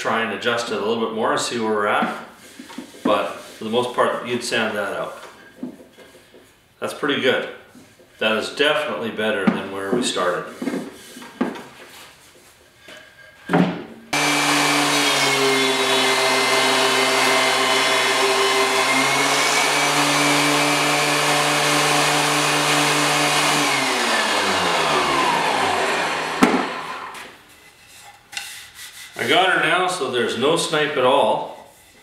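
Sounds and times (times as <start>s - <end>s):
thickness planer whining: 14.1s - 27.4s.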